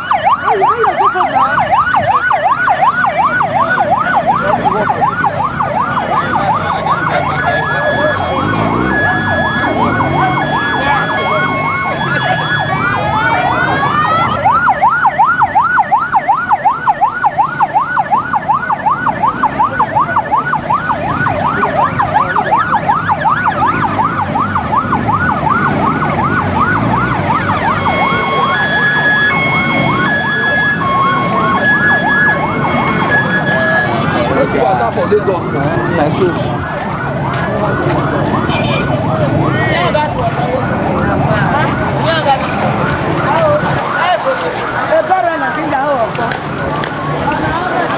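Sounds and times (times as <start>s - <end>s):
crowd noise: 0.0s - 47.9s
electronic siren yelping: 0.0s - 47.9s
electronic tone beeping: 6.4s - 15.0s.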